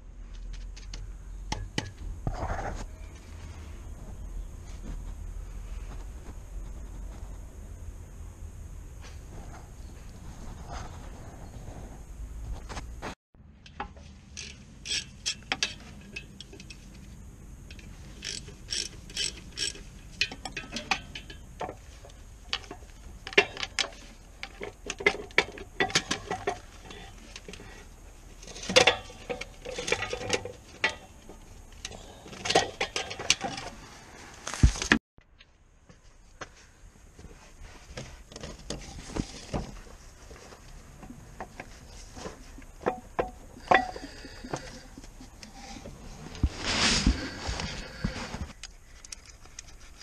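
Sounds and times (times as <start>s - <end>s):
hand ratchet clicking: 17.7s - 21.1s
metal part clattering: 17.7s - 27.7s
metal clinks and knocks: 17.7s - 27.8s.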